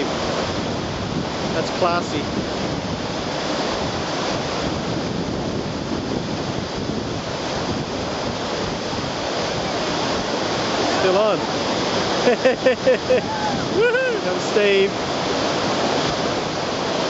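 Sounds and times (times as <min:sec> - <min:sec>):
white water rushing over boulders: 0:00.0 - 0:17.0.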